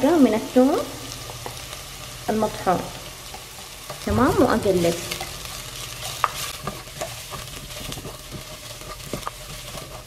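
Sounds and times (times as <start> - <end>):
onion and garlic sizzling in oil: 0.0 - 10.0
spatula stirring and scraping: 5.1 - 10.0.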